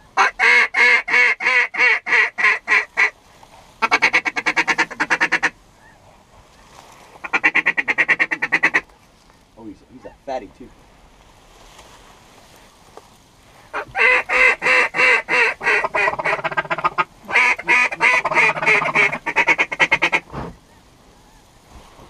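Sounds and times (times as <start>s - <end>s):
duck call quacking: 0.2s - 3.1s, 3.8s - 5.6s, 7.2s - 8.8s, 13.7s - 20.6s.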